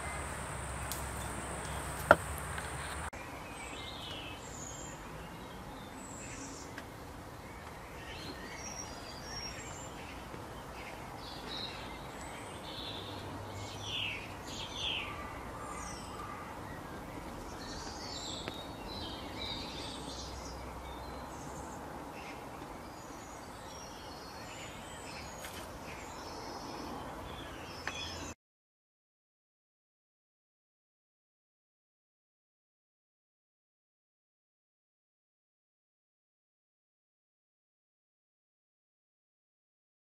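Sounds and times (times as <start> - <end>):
steady background hiss: 0.0 - 28.3
small birds chirping: 0.0 - 28.4.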